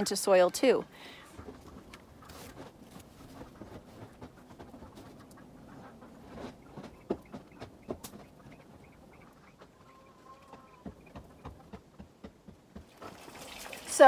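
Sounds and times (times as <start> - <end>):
potting mix rustling and scraping: 1.4 - 7.1.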